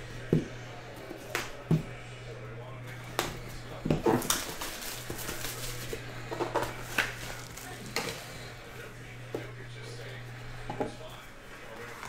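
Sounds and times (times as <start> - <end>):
shrink wrap rustling: 2.8 - 10.2.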